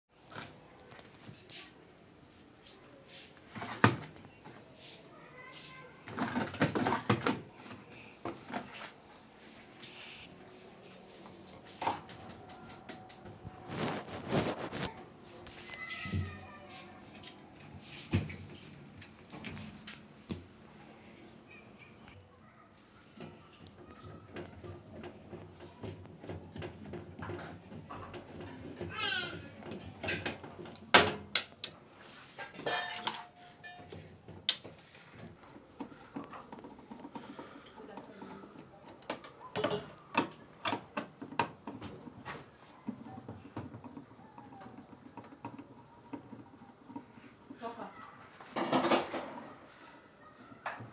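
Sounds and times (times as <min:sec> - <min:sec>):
plastic drawer clattering and knocking: 0:06.1 - 0:07.5, 0:48.5 - 0:49.4
hard parts knocking and clattering: 0:32.4 - 0:34.5, 0:48.4 - 0:49.5.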